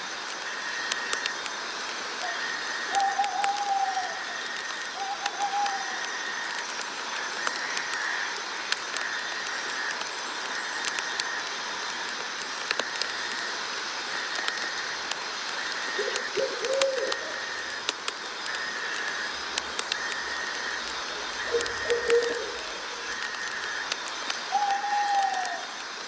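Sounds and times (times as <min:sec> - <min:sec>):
insects chirring: 0:00.0 - 0:26.0
steady hiss: 0:00.0 - 0:26.0
bird low call notes: 0:20.0 - 0:23.8.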